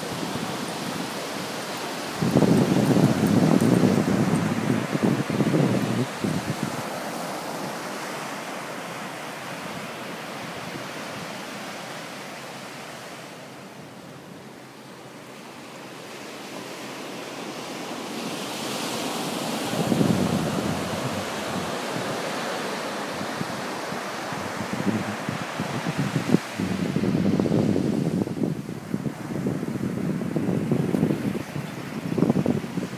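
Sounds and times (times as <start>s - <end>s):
waves breaking on beach: 0.0s - 32.9s
wind rumble on microphone: 2.1s - 7.8s, 19.6s - 22.4s, 23.1s - 32.9s.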